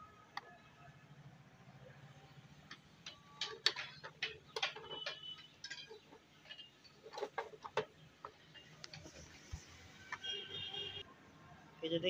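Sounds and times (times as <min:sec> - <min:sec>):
plastic clicks and knocks: 0:02.7 - 0:09.2.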